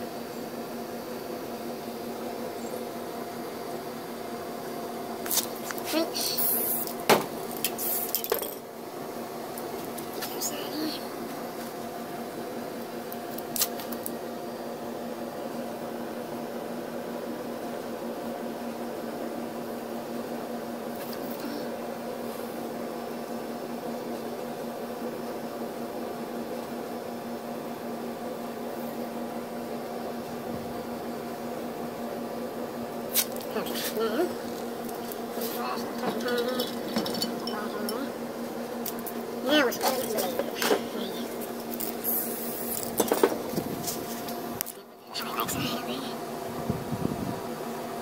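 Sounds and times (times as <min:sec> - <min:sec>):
small electric motor humming: 0:00.0 - 0:16.4, 0:30.4 - 0:48.0.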